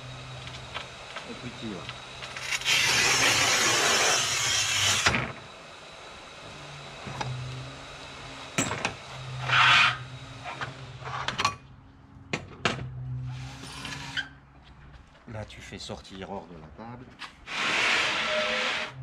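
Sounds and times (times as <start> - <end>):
loud scrape: 2.4 - 5.0, 17.4 - 19.0
tile cutter scraping tile: 2.4 - 5.1, 17.5 - 19.0.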